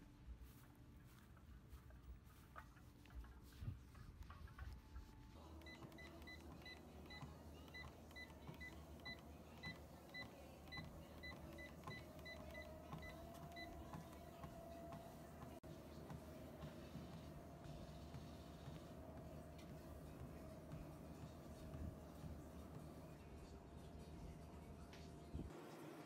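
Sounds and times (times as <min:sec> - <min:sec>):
treadmill motor whine: 0:04.9 - 0:26.0
treadmill console beeps: 0:05.4 - 0:23.1.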